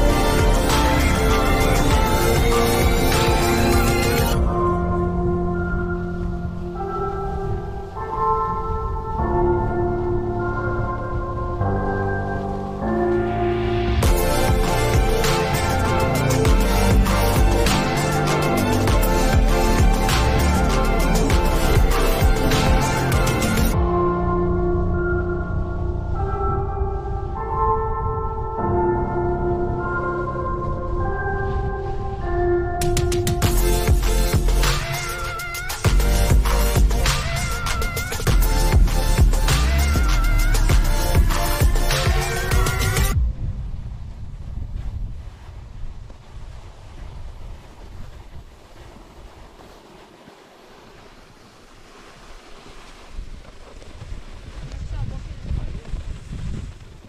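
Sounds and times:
music with long held notes: 0.0 - 43.2
snowboards sliding on snow: 13.6 - 23.8, 44.4 - 57.0
wind buffeting microphone: 40.8 - 57.0.

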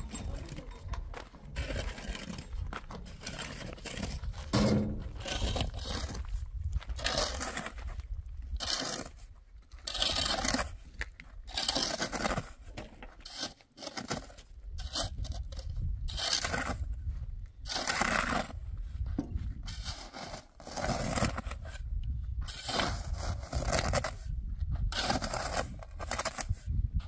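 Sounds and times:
scraping strokes: 19.7 - 21.8.

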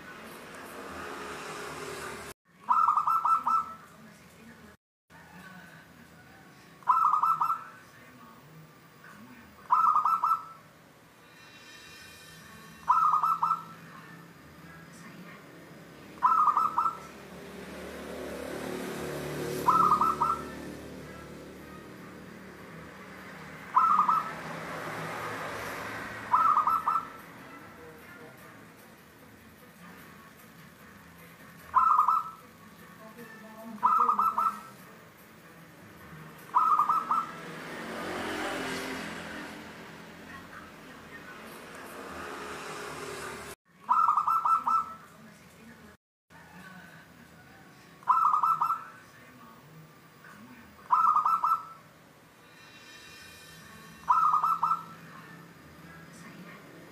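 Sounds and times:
dove cooing: 2.6 - 3.8, 6.9 - 7.6, 9.7 - 10.6, 12.9 - 13.8, 16.2 - 17.2, 19.4 - 21.4, 23.6 - 24.6, 26.3 - 27.2, 31.7 - 32.4, 33.8 - 34.8, 36.5 - 37.4, 43.9 - 45.0, 48.1 - 48.8, 50.9 - 51.8, 54.1 - 55.0.

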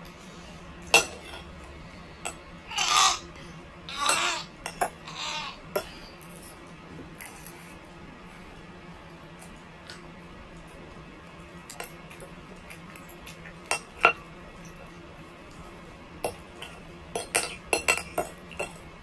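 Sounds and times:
cutlery clinking on a plate: 0.9 - 1.4, 12.9 - 14.2, 16.3 - 18.8.

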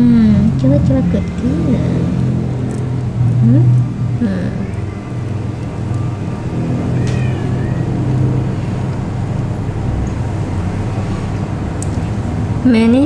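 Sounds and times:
low mechanical hum of machine: 0.0 - 13.0.

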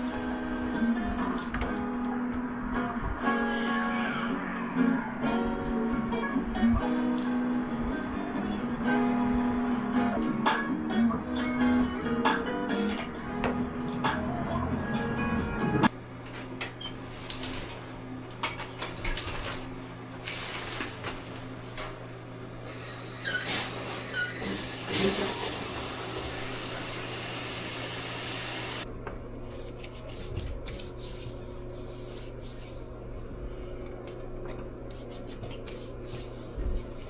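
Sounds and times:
shower water spraying: 22.7 - 28.8.

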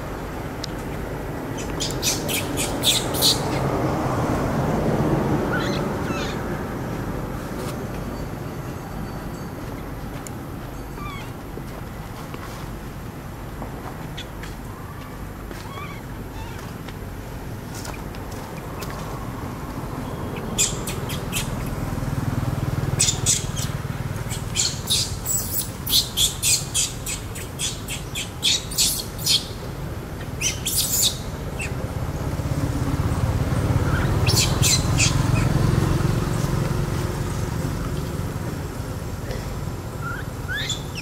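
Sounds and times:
high-pitched animal chirps: 5.5 - 6.4, 11.0 - 11.3, 20.6 - 21.5, 40.0 - 41.0.

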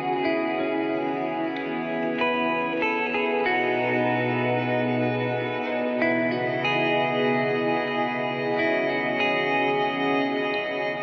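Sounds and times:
plucked guitar music: 0.0 - 11.0.

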